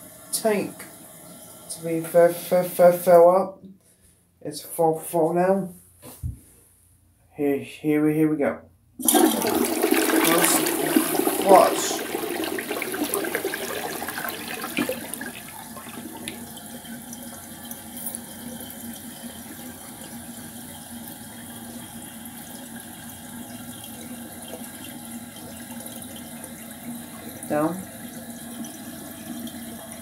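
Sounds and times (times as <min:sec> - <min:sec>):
toilet flushing: 0:09.0 - 0:30.0.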